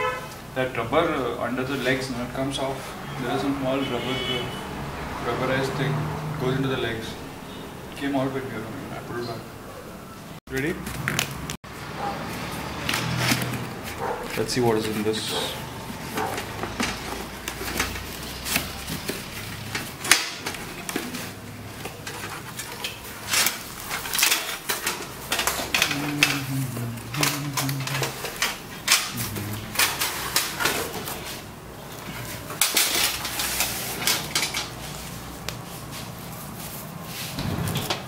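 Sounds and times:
plastic wrap rustling: 10.6s - 37.9s
metal oven parts clinking: 14.3s - 31.4s, 32.0s - 34.8s.

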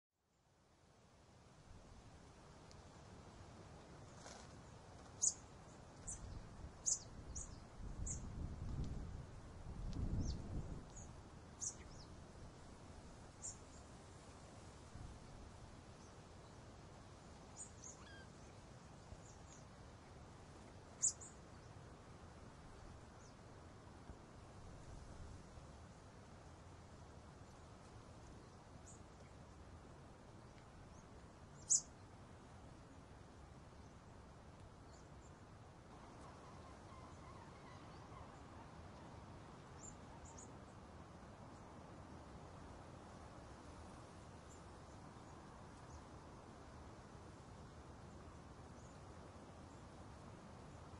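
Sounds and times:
faint outdoor background noise: 0.1s - 50.9s
low background noise: 0.2s - 50.9s
faint high bird chirps: 5.2s - 5.4s, 6.0s - 8.4s, 10.0s - 12.1s, 17.6s - 18.5s, 21.0s - 21.4s, 31.5s - 32.0s, 36.0s - 39.1s
birds chirping: 6.0s - 8.2s, 31.6s - 31.9s.

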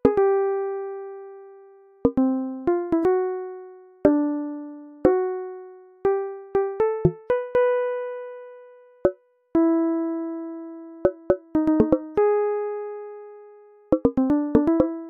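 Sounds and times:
slow melody of struck notes: 11.0s - 12.3s.

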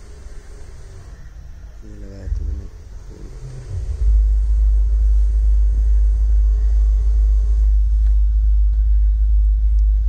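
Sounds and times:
low rumble: 2.2s - 10.0s.

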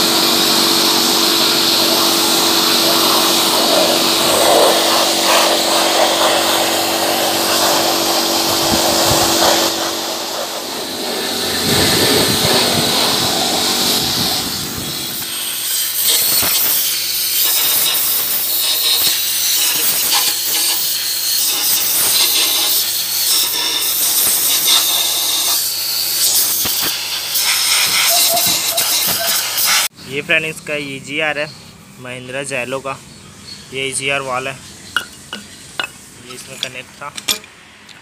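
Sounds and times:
pressure washer spraying water: 0.0s - 29.9s
hand tool clicking and scraping: 26.2s - 29.8s, 35.0s - 38.0s.

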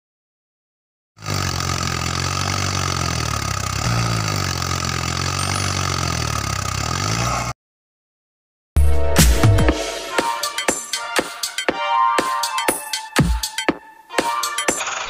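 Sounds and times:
tractor engine running: 1.2s - 7.5s.

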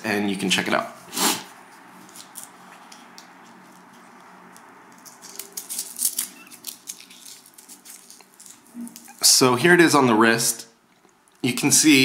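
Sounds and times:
faint hiss: 1.0s - 1.5s
velcro strap crackling: 2.0s - 9.3s.

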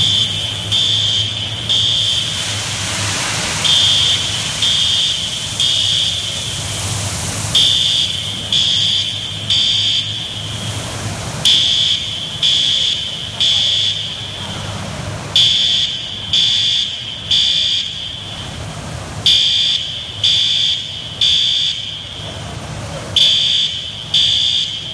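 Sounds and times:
fire alarm beeping: 0.0s - 2.4s, 3.7s - 6.9s, 7.6s - 14.6s, 15.4s - 18.6s, 19.2s - 24.9s
rush of foam pouring down: 0.0s - 13.3s.

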